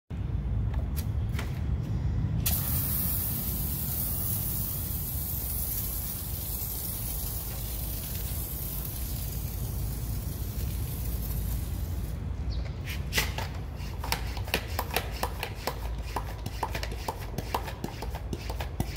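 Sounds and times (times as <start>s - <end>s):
low steady rumble: 0.1s - 12.8s
pump sprayer hissing: 2.4s - 12.2s.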